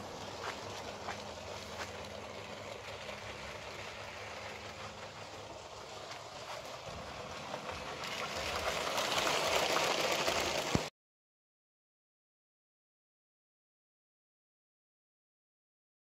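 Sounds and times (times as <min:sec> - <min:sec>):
toy train motor and wheels whirring: 0:00.0 - 0:10.9.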